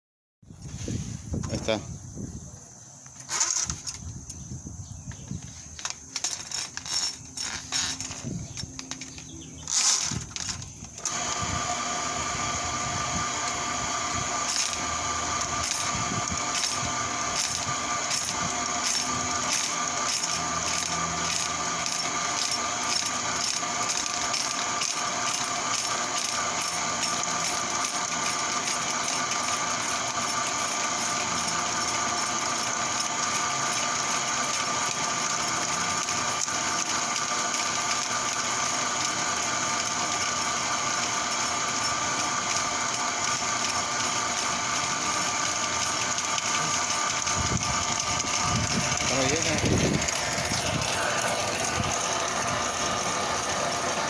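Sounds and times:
clattering: 5.8s - 11.0s
drain cleaning machine running: 5.8s - 54.0s.

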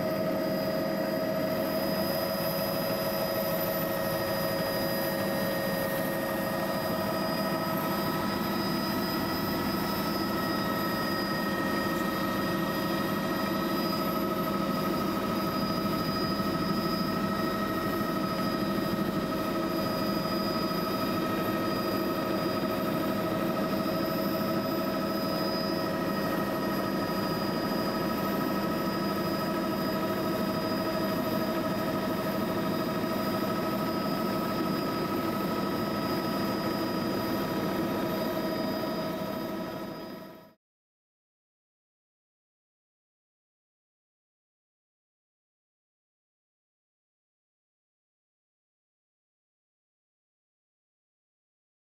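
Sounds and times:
engine drone: 0.0s - 40.3s.

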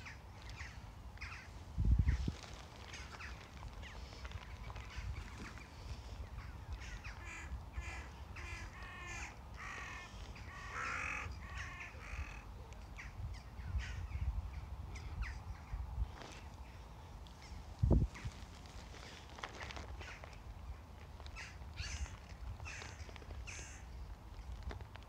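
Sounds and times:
crows cawing: 6.4s - 12.5s, 21.3s - 23.9s.

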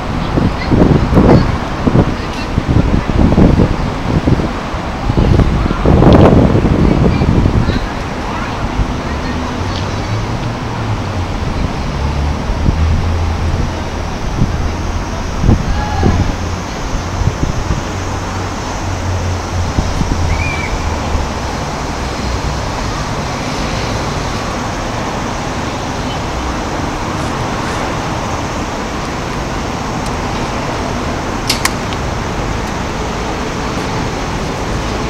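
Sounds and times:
outdoor traffic noise: 0.0s - 35.0s
sharp clicks: 31.5s - 32.0s.

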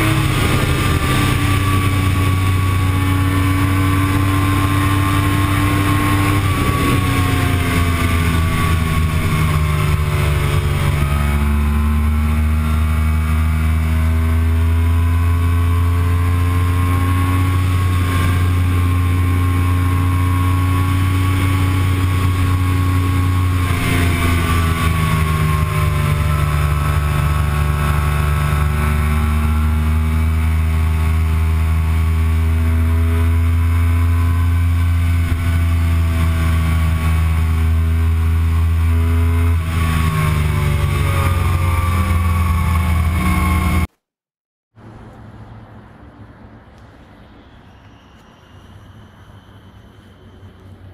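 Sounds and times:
wind rushing: 0.0s - 11.8s
motorcycle engine at high speed: 0.0s - 44.1s.

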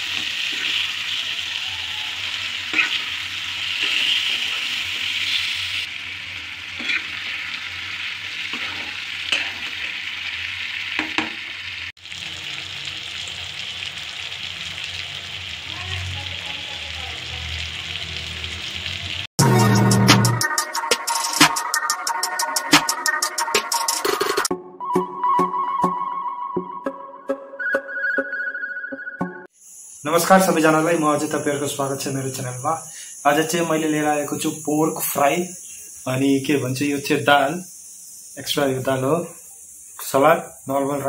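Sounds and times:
pork sizzling in a pan: 0.0s - 19.9s, 29.5s - 41.0s
metal spatula scraping a pan: 0.1s - 1.2s, 2.2s - 5.8s, 6.4s - 10.3s
loud music: 19.4s - 29.5s.

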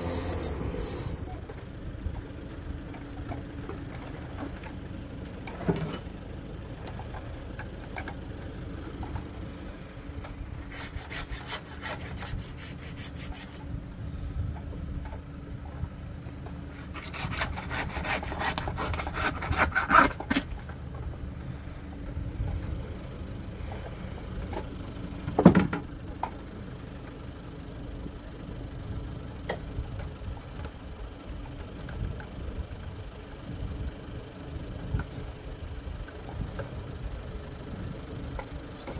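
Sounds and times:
faint engine idling: 0.0s - 38.9s
saw cutting through carcass: 10.6s - 13.5s, 16.8s - 20.2s.

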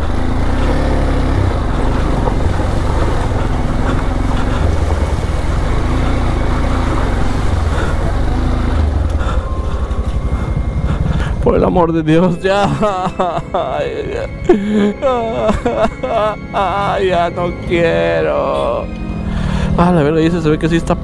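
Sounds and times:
motorcycle engine running: 0.0s - 16.6s.

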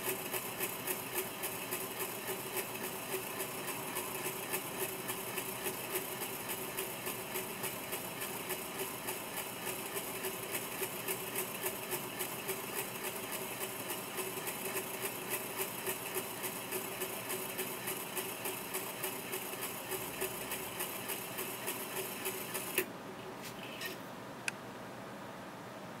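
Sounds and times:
rapid even ticking of spinning wire: 0.0s - 22.9s.

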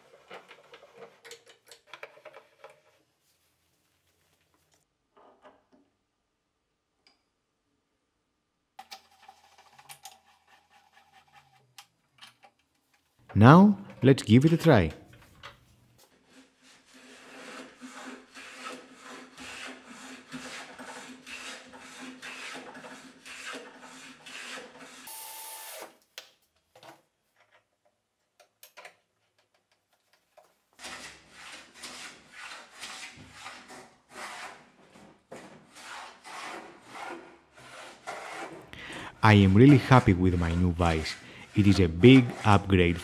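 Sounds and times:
hand plane strokes on board: 16.0s - 25.1s, 30.8s - 38.7s, 39.4s - 43.0s
hand tool rasping wood: 16.1s - 25.1s, 30.8s - 43.0s.

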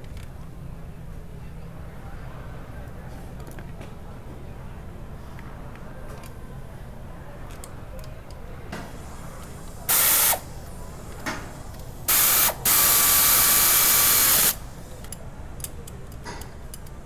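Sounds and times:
compressed-air tool hissing: 8.9s - 14.9s.

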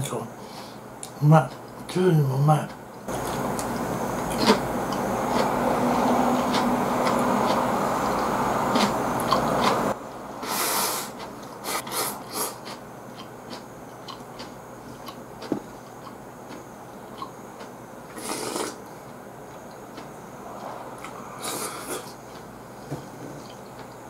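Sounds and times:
chewing: 3.2s - 5.6s, 6.4s - 7.6s, 8.7s - 9.8s, 11.1s - 18.8s
breathy sniffs: 10.4s - 12.8s, 20.6s - 22.2s
slurping soup: 18.2s - 18.8s
steady rushing noise: 19.2s - 23.4s.

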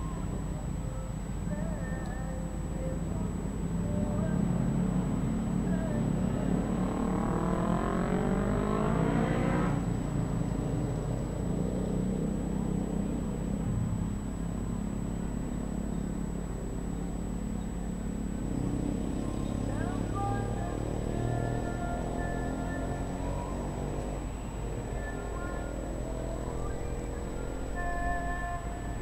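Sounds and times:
vehicle engine accelerating: 2.1s - 29.0s.

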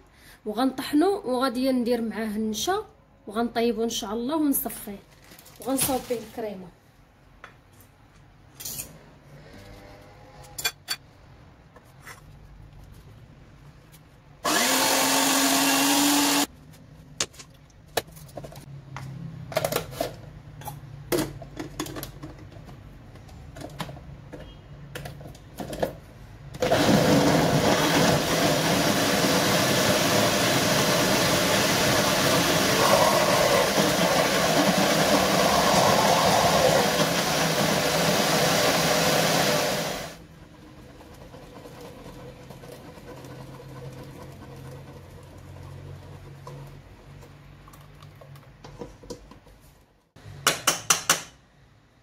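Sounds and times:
blender running: 14.4s - 16.5s, 26.6s - 40.2s
citrus juicer motor: 14.5s - 16.5s, 26.6s - 40.2s.

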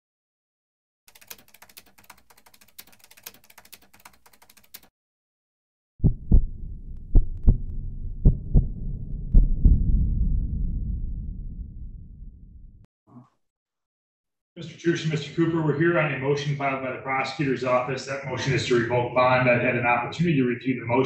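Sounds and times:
keyboard typing clicks: 1.1s - 4.9s
deep booming thumps: 6.0s - 12.8s
low rumble: 6.0s - 12.8s.

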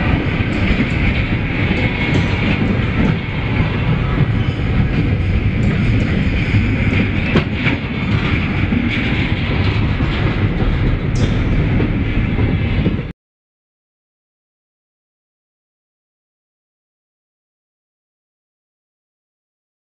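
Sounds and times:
freight train rolling past: 0.0s - 13.1s
steel wheels clattering over rail joints: 0.0s - 13.1s.

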